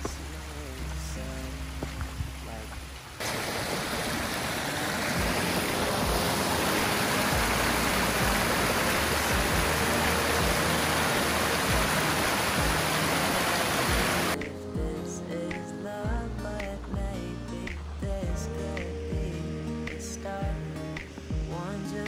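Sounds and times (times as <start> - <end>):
creek rushing over rocks: 0.0 - 14.4.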